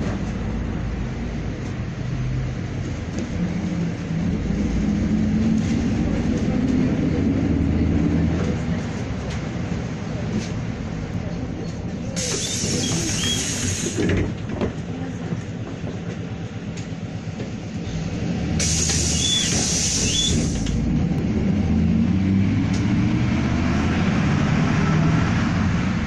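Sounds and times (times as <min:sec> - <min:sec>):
vehicle running rumble and motor hum: 0:00.0 - 0:26.0
loud hissing burst: 0:18.6 - 0:20.7.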